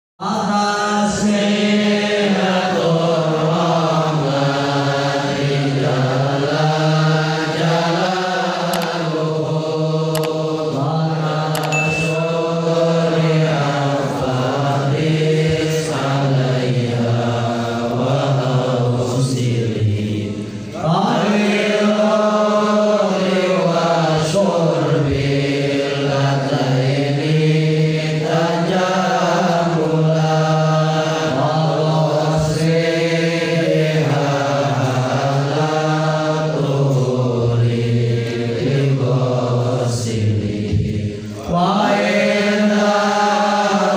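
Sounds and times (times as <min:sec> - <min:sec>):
person chanting a poem: 0:00.2 - 0:43.9.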